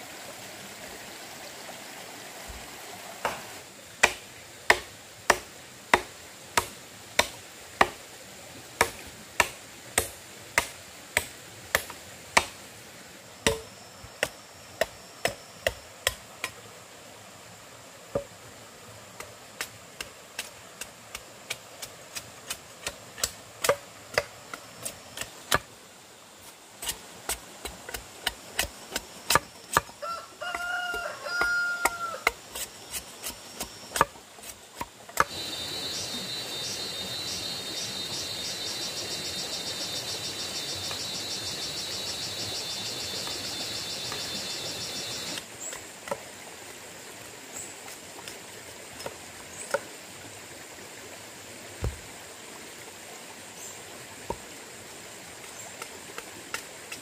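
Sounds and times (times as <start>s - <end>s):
sharp hand tool strikes: 4.0s - 8.0s, 8.8s - 12.6s, 13.5s - 16.6s, 21.8s - 25.7s.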